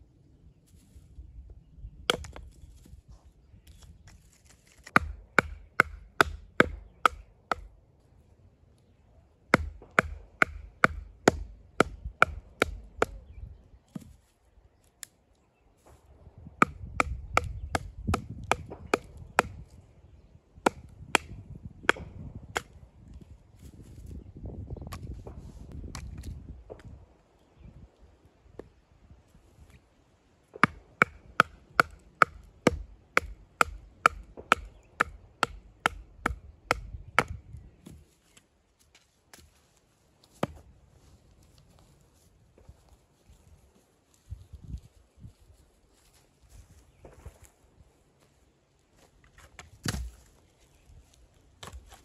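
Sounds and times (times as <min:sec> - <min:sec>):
firewood chopping strikes: 0:02.1 - 0:02.6, 0:04.4 - 0:07.7, 0:09.5 - 0:13.2, 0:16.6 - 0:19.7, 0:20.6 - 0:22.8, 0:30.5 - 0:38.0, 0:40.3 - 0:40.6, 0:49.5 - 0:50.3.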